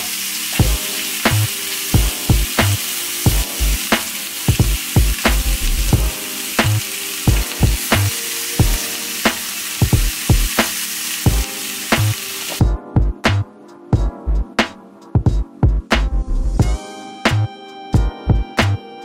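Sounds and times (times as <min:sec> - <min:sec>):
meat sizzling in oil: 0:00.0 - 0:12.6
music beat with low kick: 0:00.6 - 0:01.4, 0:02.0 - 0:03.8, 0:04.5 - 0:08.8, 0:09.8 - 0:10.6, 0:11.3 - 0:18.8.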